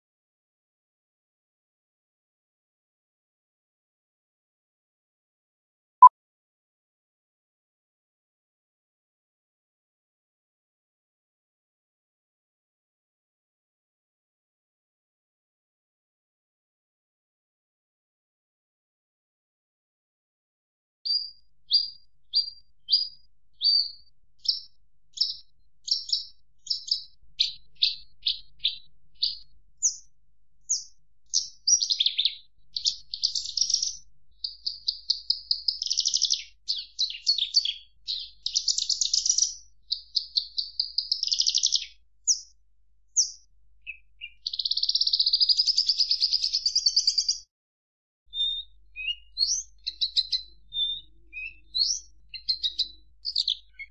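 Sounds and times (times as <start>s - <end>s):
bird chirping and trilling: 21.1s - 30.1s, 30.7s - 42.5s, 43.2s - 47.4s, 48.3s - 53.9s.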